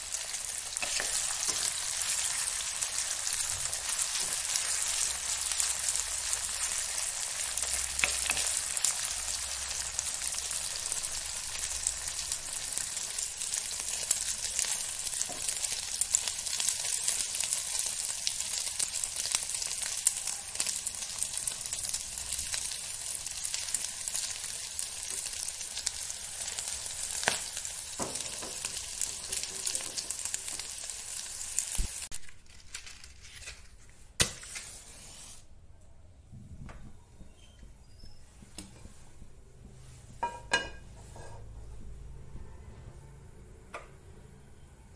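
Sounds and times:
sausage sizzling in oil: 0:00.0 - 0:32.1.

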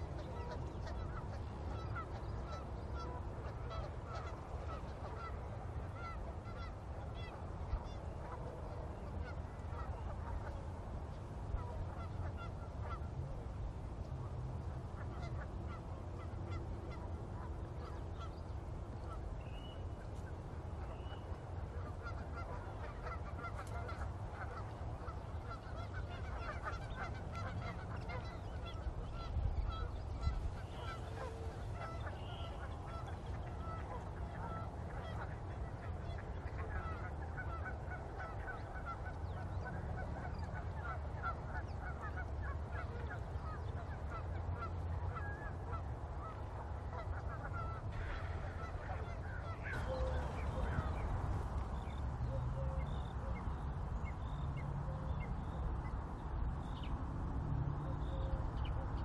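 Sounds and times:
geese honking: 0:00.0 - 0:10.6, 0:11.4 - 0:13.4, 0:14.6 - 0:56.9
steady low rumble: 0:47.1 - 0:57.3.

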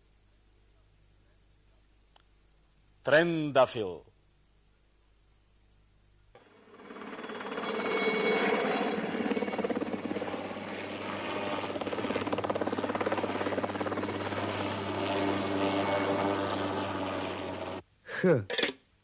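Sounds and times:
engine drone: 0:06.4 - 0:17.8
helicopter rotor chopping: 0:06.4 - 0:17.8.

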